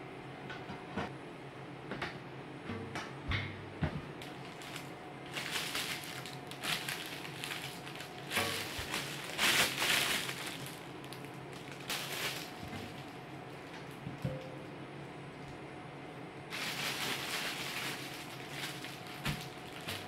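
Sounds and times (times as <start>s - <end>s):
plastic bags crinkling: 4.2s - 14.2s, 16.5s - 20.0s.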